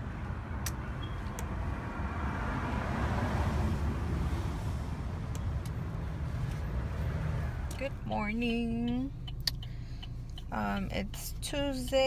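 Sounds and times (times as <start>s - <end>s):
car passing: 0.0s - 8.1s
low engine rumble: 3.8s - 12.0s.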